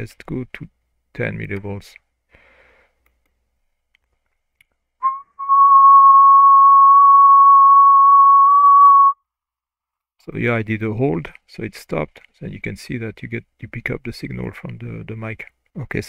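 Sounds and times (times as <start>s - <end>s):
person whistling a high note: 5.0s - 9.2s.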